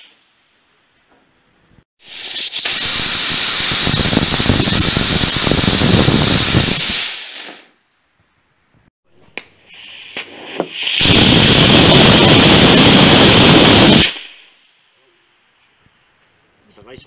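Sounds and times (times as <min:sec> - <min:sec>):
sharp pops: 0:02.0 - 0:07.8, 0:09.3 - 0:14.6
rocket motor exhaust roaring: 0:02.4 - 0:07.5, 0:10.7 - 0:14.4.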